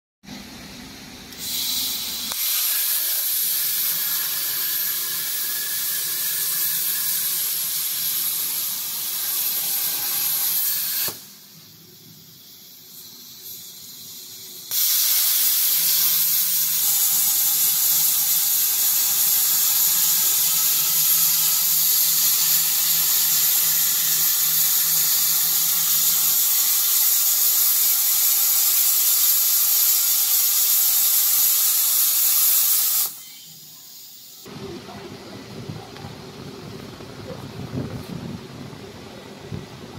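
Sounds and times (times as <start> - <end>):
plasma cutting torch hissing: 1.3 - 34.5.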